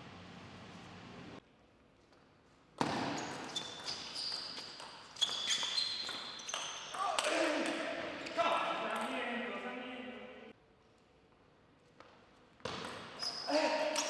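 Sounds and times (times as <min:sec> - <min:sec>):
sports shoes squeaking: 0:02.8 - 0:09.2, 0:12.6 - 0:14.0.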